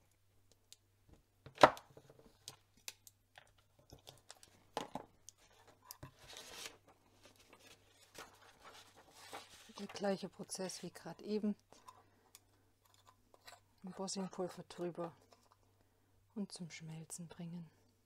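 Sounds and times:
paper sliding and rustling: 6.1s - 10.1s.

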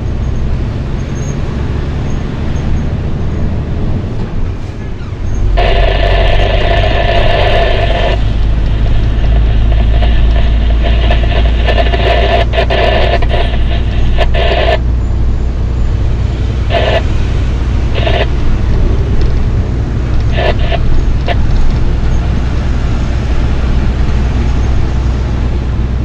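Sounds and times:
vehicle engine and road noise: 0.0s - 26.0s
loud steady horn-like tone: 5.5s - 14.9s, 16.6s - 19.2s.

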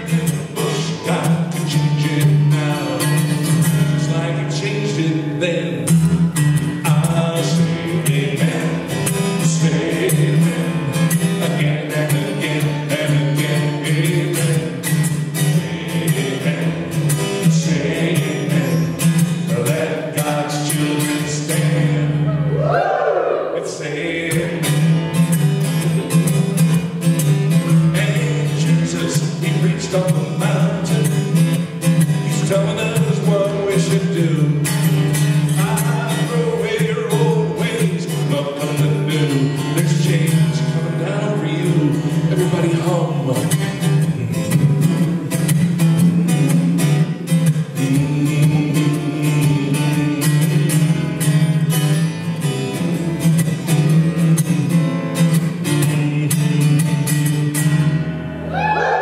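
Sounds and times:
man singing gospel song: 0.0s - 3.2s, 3.8s - 5.9s, 6.8s - 22.3s, 23.5s - 24.8s, 27.8s - 31.2s, 32.2s - 34.7s, 35.5s - 45.3s, 47.7s - 50.8s, 55.6s - 57.0s
strummed acoustic guitar: 0.0s - 59.0s
sliding vocal cry: 58.5s - 59.0s.

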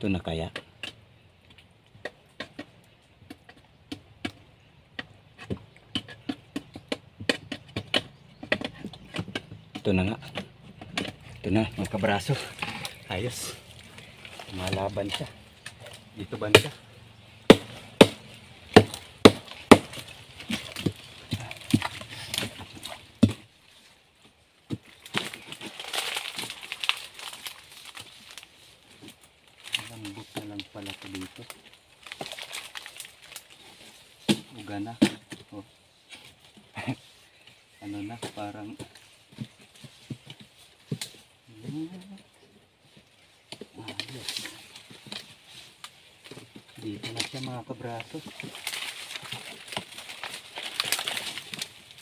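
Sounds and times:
scraping and digging in mud: 0.3s - 52.0s
sharp clicks and wet knocks in mud: 0.5s - 23.5s.

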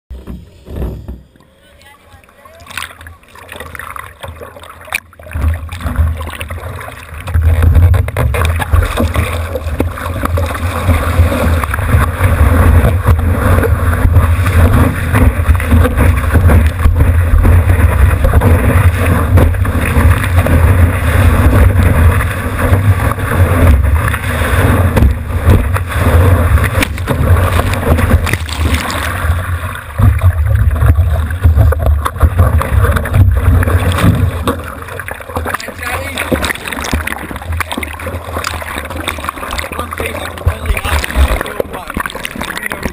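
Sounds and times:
surf water rushing: 0.2s - 42.9s
wind buffeting camera: 7.3s - 34.6s.

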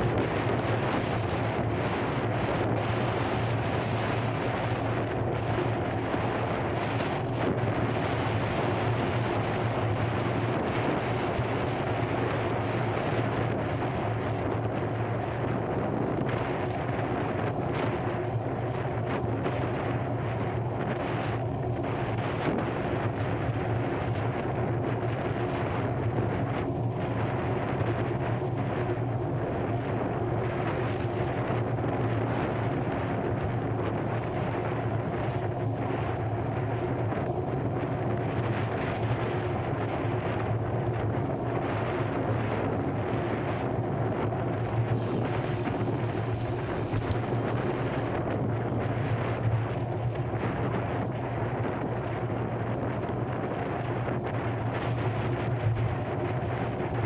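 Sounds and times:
steady low drone: 0.0s - 57.0s
rushing noise: 44.8s - 48.3s.

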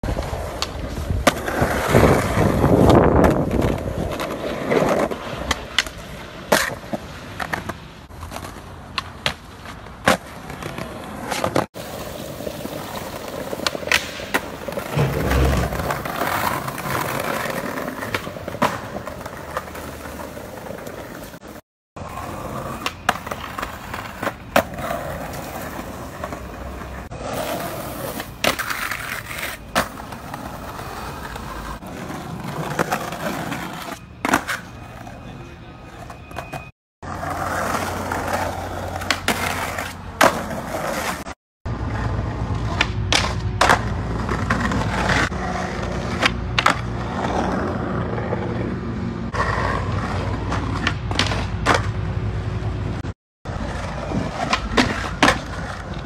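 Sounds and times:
skateboard wheels rolling on pavement: 0.0s - 56.0s
heavy thumps: 14.8s - 16.7s.

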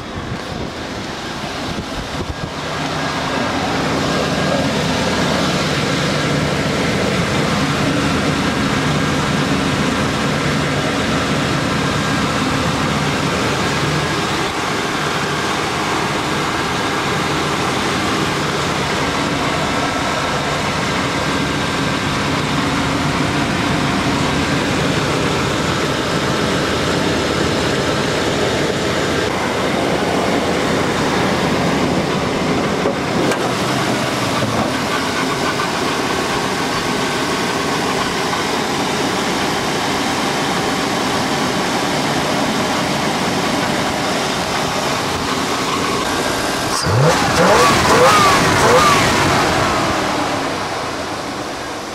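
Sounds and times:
pickup truck engine idling: 0.0s - 51.9s.

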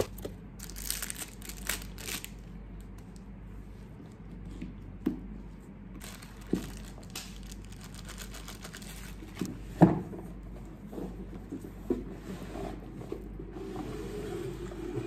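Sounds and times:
crinkling and rustling: 0.0s - 3.2s, 6.0s - 9.5s.

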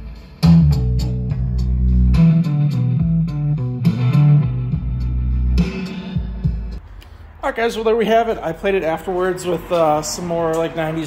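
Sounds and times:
music through car stereo: 0.0s - 6.8s.

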